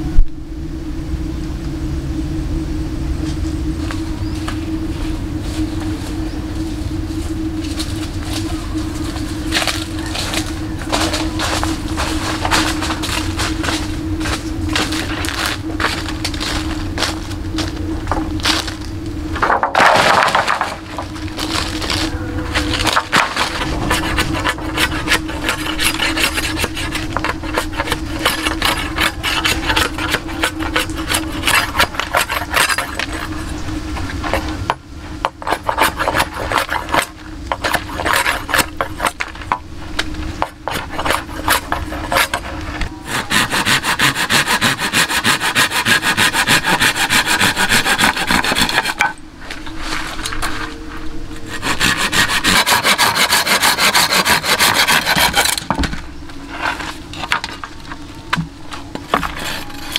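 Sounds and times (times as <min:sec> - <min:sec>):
hand tool rasping on wood: 0:22.6 - 0:33.5, 0:35.3 - 0:39.3, 0:40.4 - 0:49.2, 0:51.5 - 0:55.6, 0:59.1 - 0:59.9.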